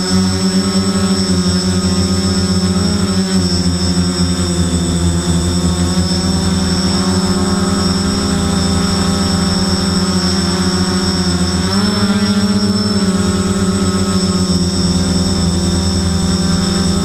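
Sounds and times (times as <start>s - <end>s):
drone motors buzzing: 0.0s - 17.0s.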